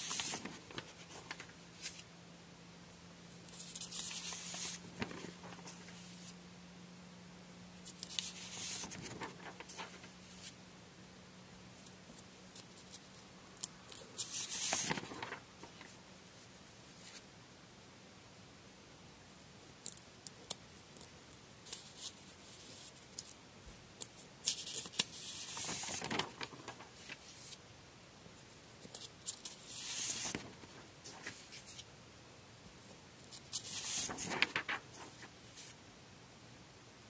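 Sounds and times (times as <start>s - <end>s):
paper rustling and sliding: 0.0s - 2.1s, 3.4s - 6.3s, 7.8s - 10.6s, 12.1s - 16.0s, 24.0s - 27.6s, 28.4s - 31.9s, 32.8s - 35.8s.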